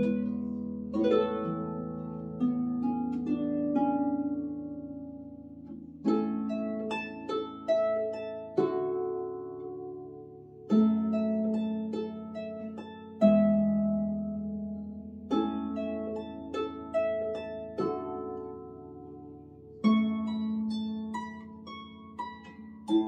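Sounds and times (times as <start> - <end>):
lever harp played solo: 0.0 - 23.0.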